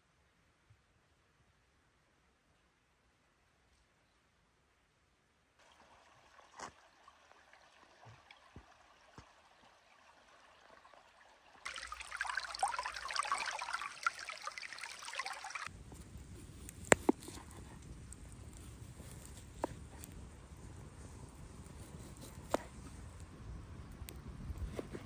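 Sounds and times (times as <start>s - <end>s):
creek water babbling over stones: 5.6s - 15.7s.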